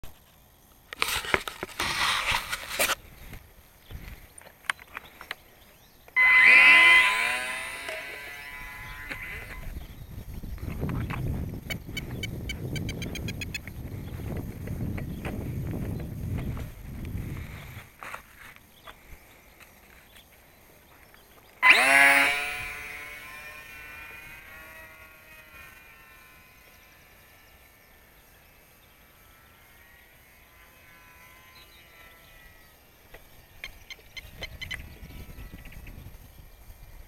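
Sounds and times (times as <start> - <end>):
model plane motor and propeller: 0.2 - 37.0
rising whine: 6.1 - 17.2, 21.6 - 28.2.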